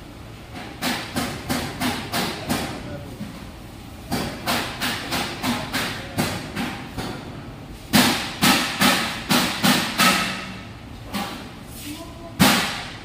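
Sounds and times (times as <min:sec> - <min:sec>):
sharp knocks: 0:07.9 - 0:11.4.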